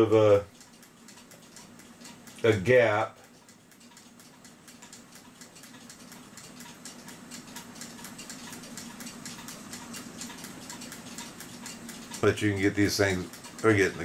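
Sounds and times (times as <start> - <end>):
faint steady hum: 0.0 - 14.0
small metallic clock clicks: 0.0 - 14.0.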